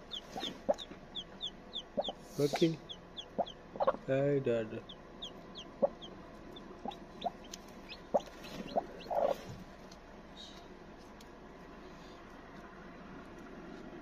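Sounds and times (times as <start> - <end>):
hen clucking: 0.0 - 4.1, 4.8 - 9.6
chicks peeping: 0.0 - 4.2, 4.8 - 10.0.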